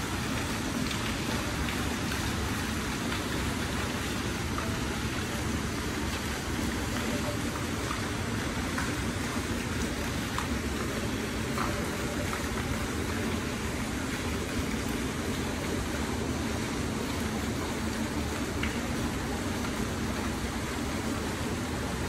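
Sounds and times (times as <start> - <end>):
faint water drips: 0.0 - 22.0
fountain water splashing: 0.0 - 22.0.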